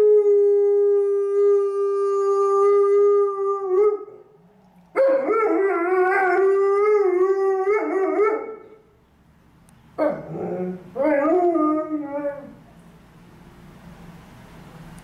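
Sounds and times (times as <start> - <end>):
dog howling: 5.0 - 8.7, 10.0 - 12.6.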